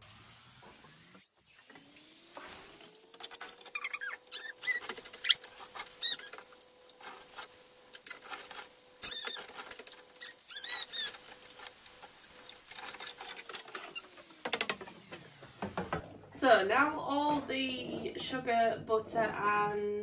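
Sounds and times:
wooden spoon scraping a saucepan: 7.0s - 14.3s, 16.8s - 18.6s.

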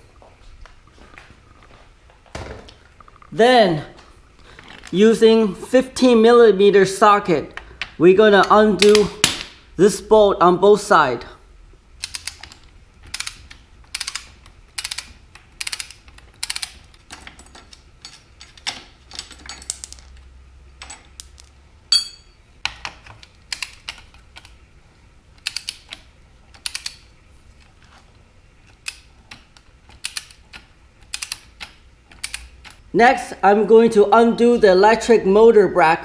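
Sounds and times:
socket ratchet clicking: 12.0s - 17.1s, 25.4s - 27.0s, 29.9s - 32.8s
ringing metallic ting: 21.9s - 22.4s.

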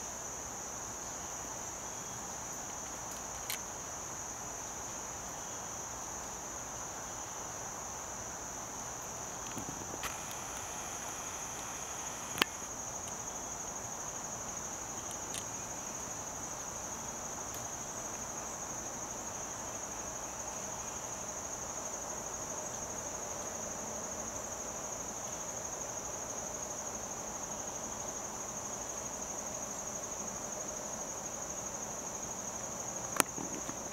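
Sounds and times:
high-pitched insect chorus: 0.0s - 33.9s.

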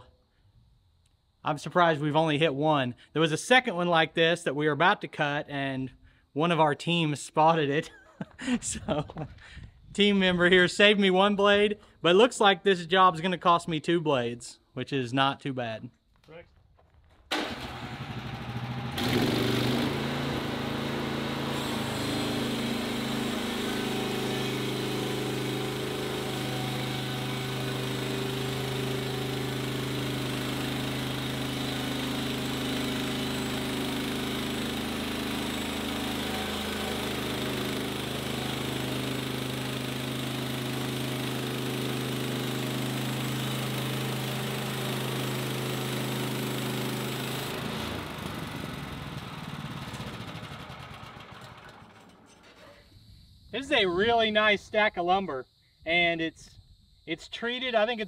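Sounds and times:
bandsaw mill gas engine: 17.3s - 52.8s
band blade cutting wood: 19.0s - 44.5s.

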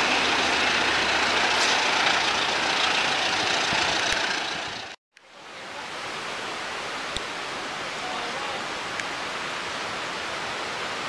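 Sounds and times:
outdoor background hiss: 5.2s - 11.0s.

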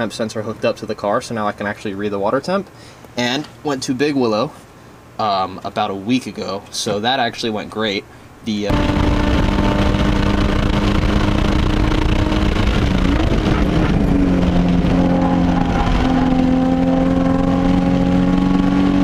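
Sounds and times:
road and wind noise: 8.2s - 19.0s
car engine pulling under load: 8.7s - 19.0s.

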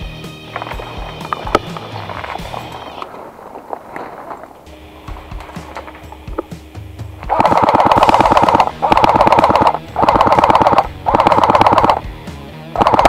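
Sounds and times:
airsoft gun firing full auto: 7.2s - 12.1s, 12.8s - 13.0s.

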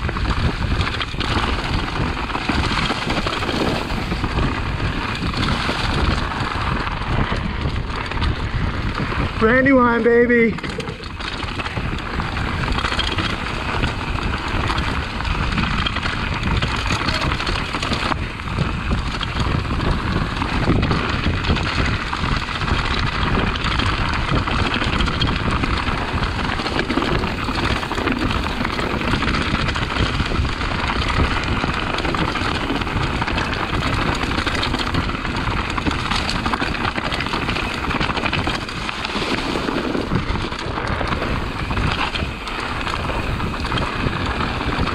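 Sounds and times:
bike frame rattling: 0.0s - 44.9s
bike tyres rushing on dirt: 0.0s - 44.9s.

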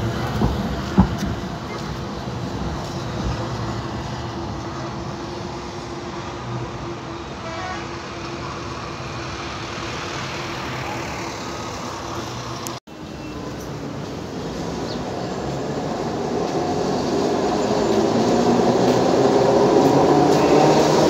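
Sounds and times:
traffic road noise rumble: 0.0s - 21.0s
tram moving along track: 0.0s - 21.0s.

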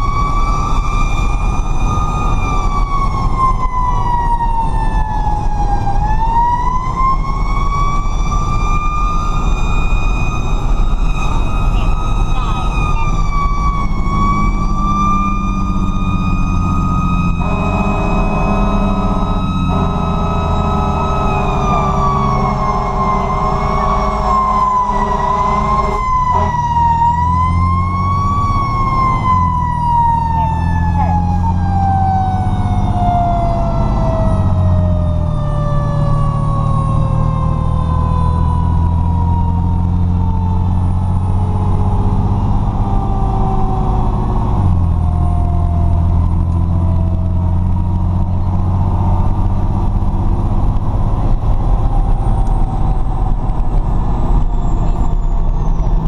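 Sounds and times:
diesel truck engine running: 0.0s - 56.0s
mechanical siren wailing: 0.0s - 56.0s
horn chord: 17.4s - 26.8s.

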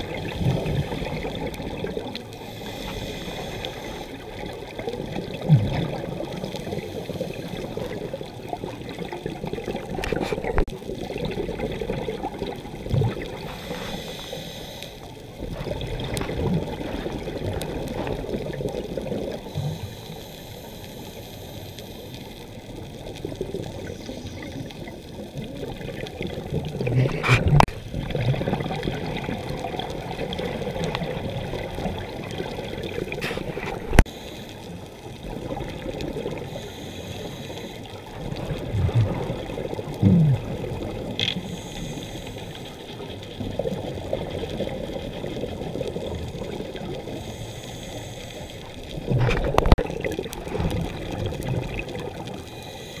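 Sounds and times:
gurgling bubbles: 0.0s - 14.3s, 15.3s - 20.2s, 22.2s - 34.2s, 34.8s - 47.5s, 48.6s - 53.0s
muffled underwater wash: 0.0s - 53.0s.

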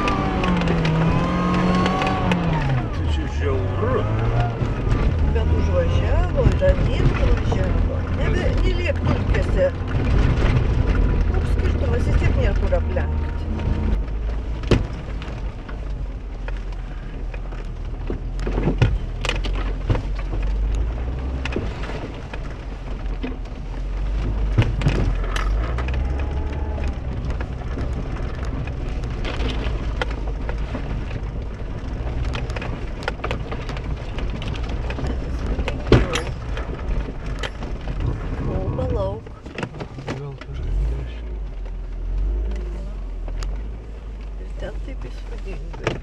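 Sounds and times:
car engine at low revs: 0.0s - 46.0s
car body knocks and rattles: 13.6s - 15.9s, 17.9s - 26.2s.

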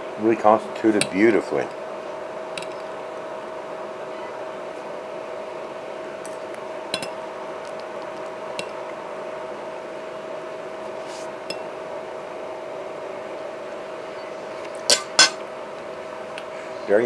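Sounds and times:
steady background hum: 0.0s - 17.0s
fork clinking on ceramic plate: 14.9s - 15.4s.

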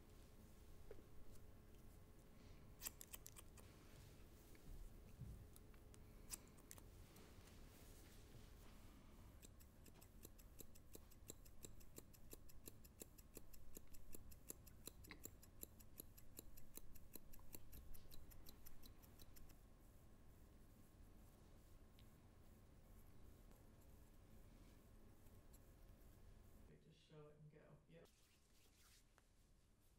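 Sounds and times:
shears snipping hair: 2.8s - 3.6s, 9.3s - 19.5s.

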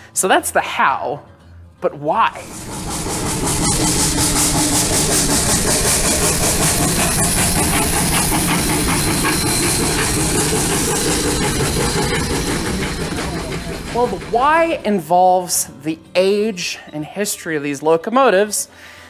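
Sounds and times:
steam hissing: 2.2s - 15.8s
train running noise: 2.2s - 16.6s.

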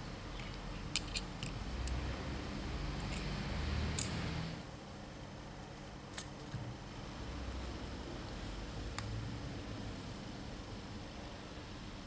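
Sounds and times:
metal pump parts clinking: 0.4s - 2.0s, 4.0s - 4.3s.

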